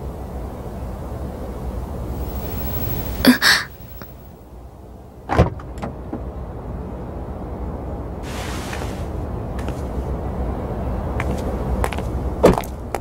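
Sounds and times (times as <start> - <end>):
low car rumble: 0.0 - 8.2.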